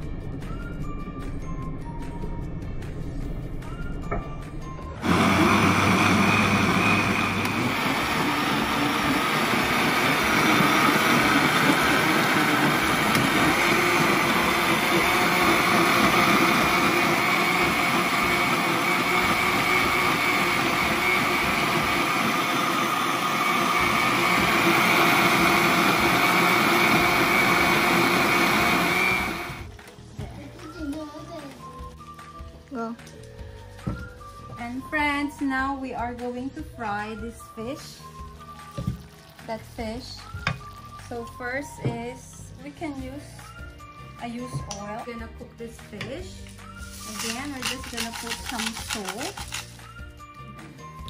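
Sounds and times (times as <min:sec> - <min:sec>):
blender motor whining: 0:05.0 - 0:29.7, 0:46.6 - 0:49.8.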